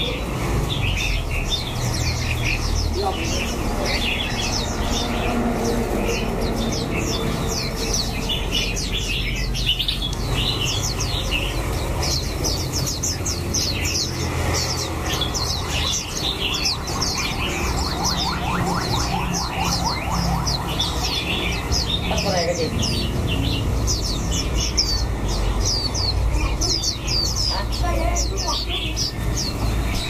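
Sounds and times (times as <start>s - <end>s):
bird trilling: 0.0s - 30.0s
songbirds chirping: 0.0s - 30.0s.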